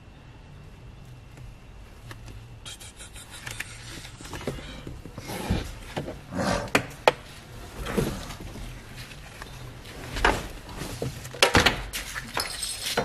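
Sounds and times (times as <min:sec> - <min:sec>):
rustling and light knocks: 0:07.0 - 0:13.0.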